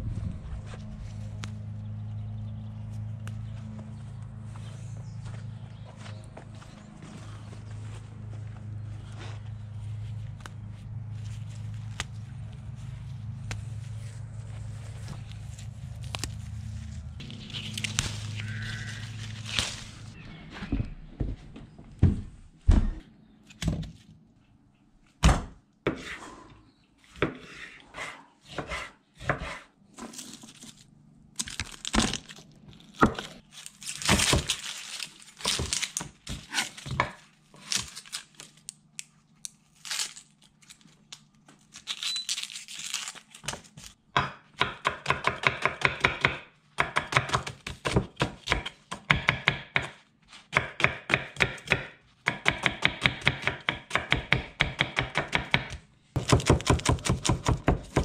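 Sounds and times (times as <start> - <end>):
papery rustling of onion skins: 9.1 - 20.2, 30.0 - 44.0
knife chopping on wooden board: 44.2 - 58.0.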